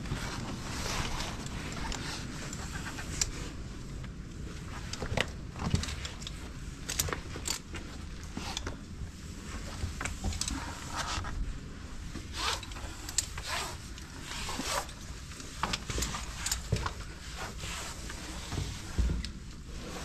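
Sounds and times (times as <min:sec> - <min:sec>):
gear rubbing and zipping: 0:12.3 - 0:14.9.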